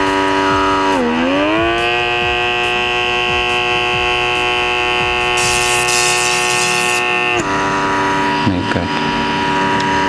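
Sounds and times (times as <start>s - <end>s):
suction pump whining: 0.3s - 7.6s.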